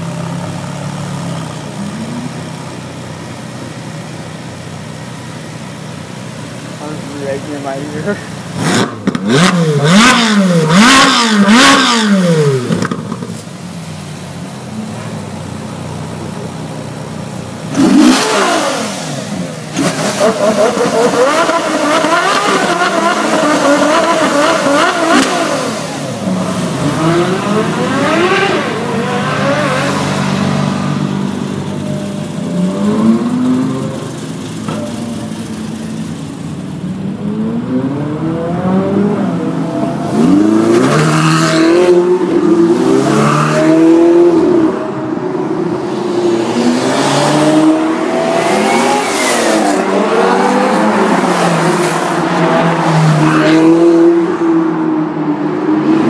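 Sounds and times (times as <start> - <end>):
sports cars revving past: 8.4 - 13.3, 17.7 - 34.6, 37.0 - 56.0.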